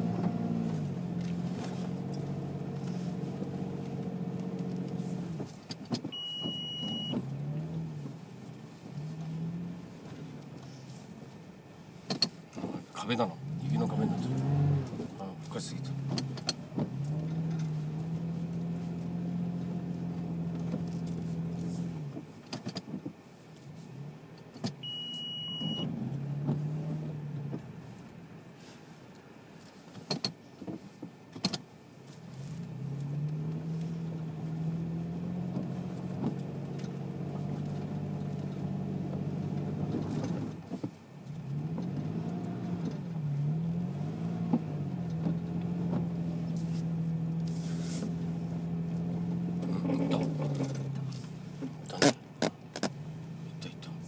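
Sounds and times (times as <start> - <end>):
car engine revving: 0.0 - 5.6, 6.8 - 10.8, 13.0 - 22.2, 24.8 - 27.8, 32.3 - 40.7, 41.3 - 54.0
short high beep: 6.2 - 7.2, 24.8 - 25.9.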